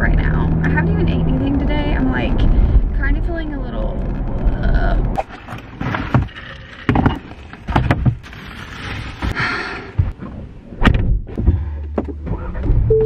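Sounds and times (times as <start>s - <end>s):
knocks and thumps: 5.2s - 8.3s, 10.0s - 12.9s.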